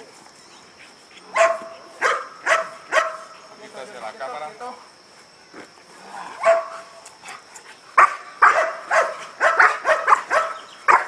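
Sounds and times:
dog barking aggressively: 1.3 - 3.4, 6.3 - 6.9, 8.0 - 11.0.

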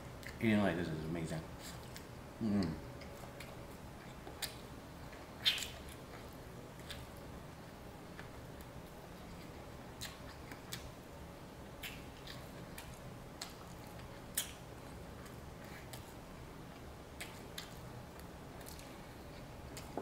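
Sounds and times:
chewing sticky ribs: 0.1 - 0.6, 1.4 - 20.0
wet mouth clicks and smacks: 5.4 - 5.8, 11.8 - 13.6, 14.3 - 14.6.

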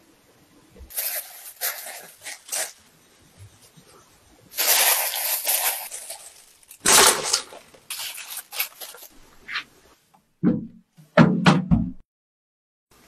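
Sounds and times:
sugar sprinkled with soft hiss: 0.9 - 10.0
bread cubes tumbling onto baking sheet: 4.6 - 9.1.

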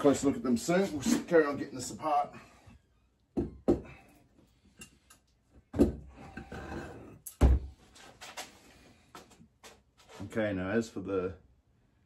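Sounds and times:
tools knocking and clunking: 3.4 - 4.0.

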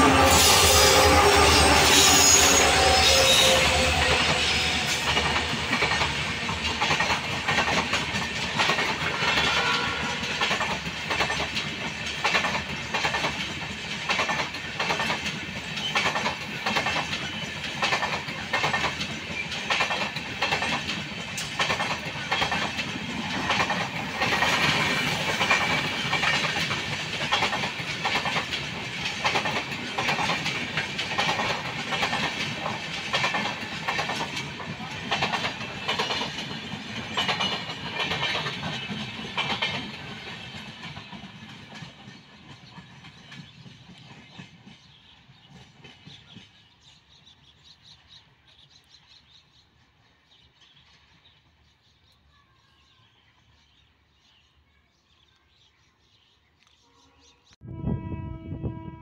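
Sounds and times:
train wheels clattering over rail joints: 2.0 - 47.4.

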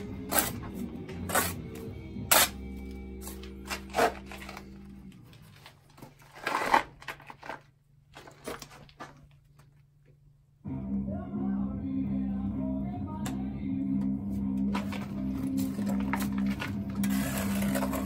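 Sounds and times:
soft background music: 0.0 - 5.9, 10.6 - 18.0
trowel scraping mortar on block: 0.2 - 1.6.

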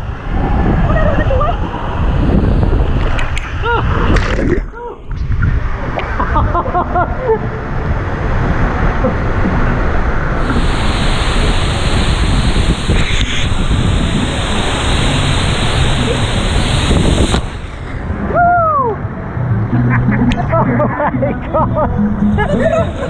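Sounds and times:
water rushing and sloshing: 0.0 - 18.3.

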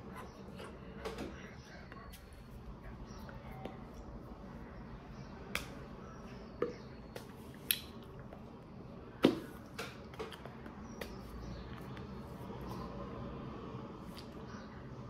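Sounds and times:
faint room hum: 0.0 - 15.0
hands clapping: 5.5 - 5.8.

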